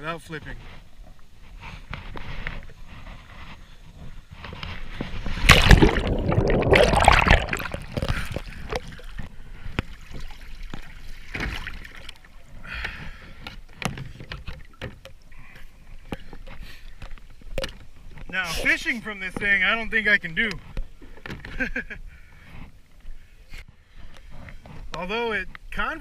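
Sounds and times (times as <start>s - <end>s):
water sloshing and splashing: 0.8s - 18.4s
big splash of person falling in: 5.4s - 8.0s.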